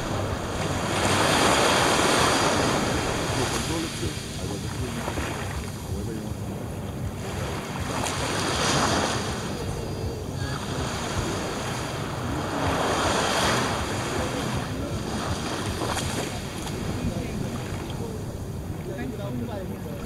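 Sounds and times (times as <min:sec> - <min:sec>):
small waves washing onto sand: 0:00.0 - 0:20.0
wind rumbling on microphone: 0:00.0 - 0:20.0.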